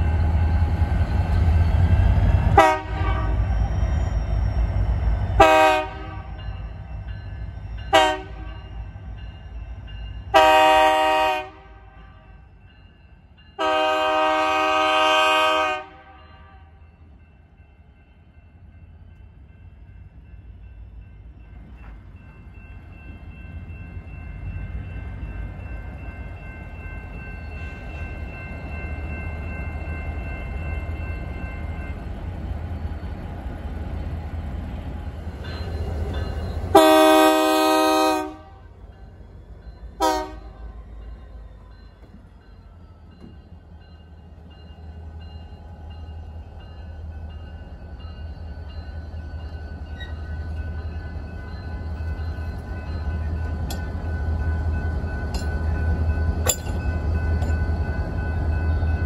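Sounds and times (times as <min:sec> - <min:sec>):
locomotive horn blast: 0:02.6 - 0:03.5, 0:05.4 - 0:06.3, 0:07.9 - 0:08.6, 0:10.3 - 0:12.4, 0:13.6 - 0:16.8, 0:36.7 - 0:38.7, 0:40.0 - 0:40.6.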